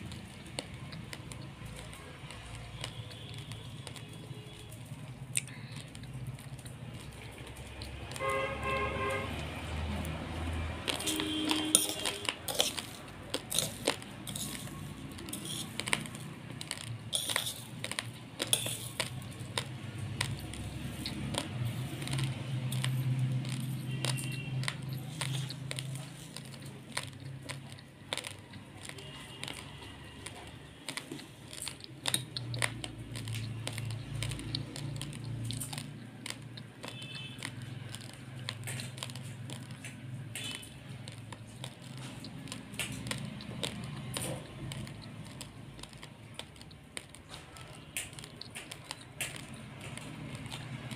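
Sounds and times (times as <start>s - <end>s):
crunching raw rice: 0.0s - 50.9s
spoon clinking on steel plate: 18.4s - 18.9s.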